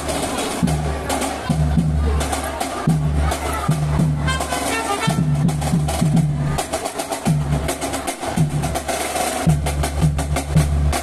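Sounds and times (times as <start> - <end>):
snare and bass drum strokes: 0.0 - 11.0
trombones and sousaphone low notes: 3.8 - 6.2.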